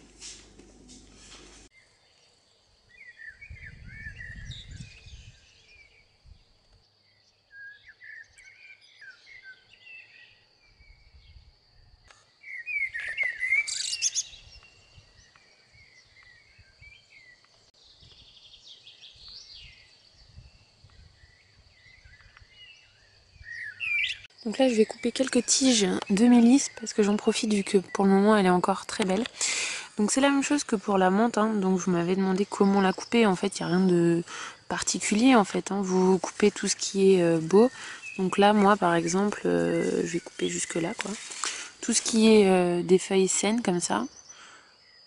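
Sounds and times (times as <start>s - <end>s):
birds chirping and singing: 2.9s - 6.1s, 12.4s - 45.0s.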